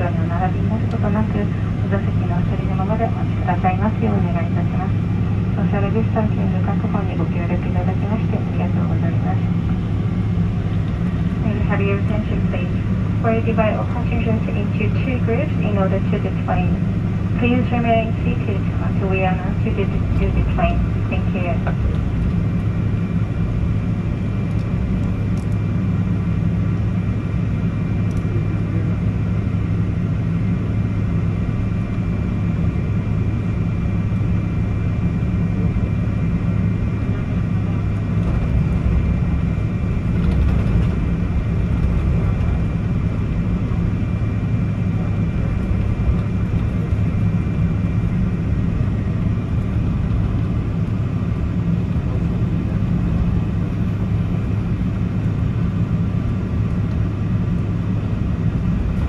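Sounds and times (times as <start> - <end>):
airplane cabin rumble: 0.0 - 59.0.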